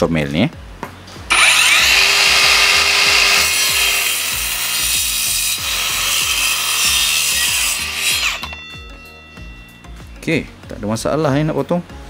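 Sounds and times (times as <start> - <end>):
circular saw cutting wood: 1.3 - 10.2.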